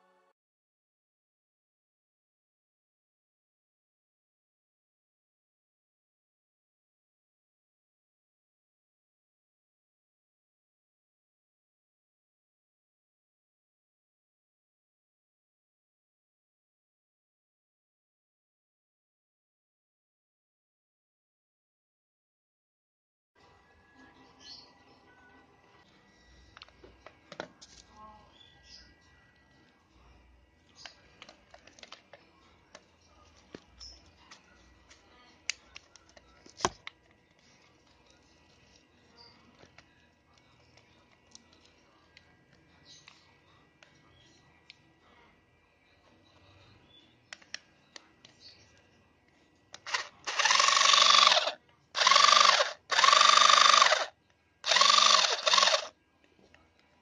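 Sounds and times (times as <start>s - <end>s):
cordless screwdriver motor whining: 49.9s - 54.1s, 54.7s - 55.9s.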